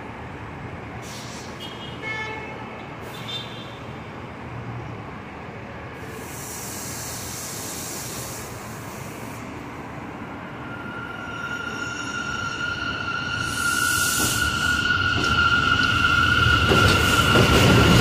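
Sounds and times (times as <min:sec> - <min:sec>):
subway train low rumble: 0:00.0 - 0:18.0
hiss of air: 0:01.0 - 0:01.6, 0:06.0 - 0:09.6.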